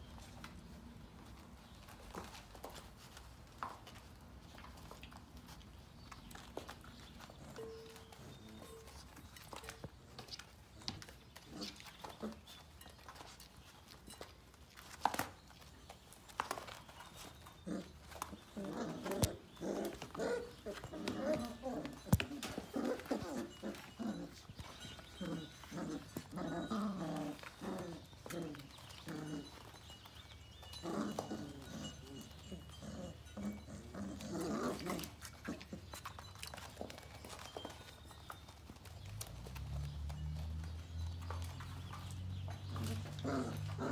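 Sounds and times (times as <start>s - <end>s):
puppies tussling: 0.0s - 43.9s.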